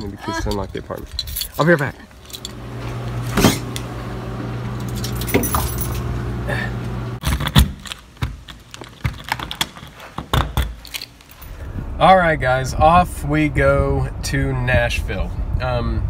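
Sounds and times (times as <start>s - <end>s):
keys jangling: 0.4s - 2.6s, 4.8s - 6.1s, 10.6s - 11.6s
low hum: 11.4s - 16.0s.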